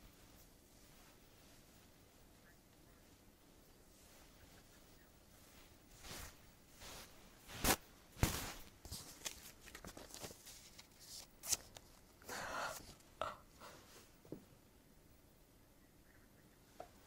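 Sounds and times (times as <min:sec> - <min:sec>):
clothing and paper rustling: 0:00.0 - 0:13.1.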